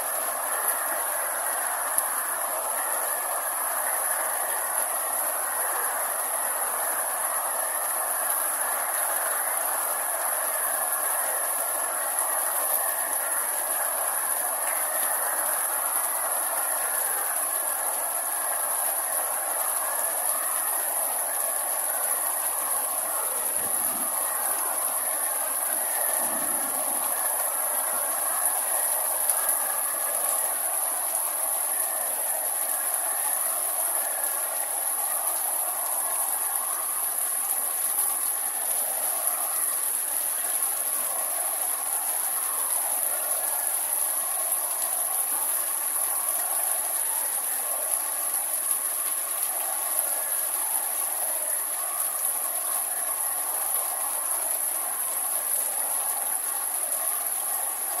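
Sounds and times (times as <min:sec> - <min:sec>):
high-pitched whine: 0:00.0 - 0:53.2
steady rain on vegetation: 0:00.0 - 0:58.0.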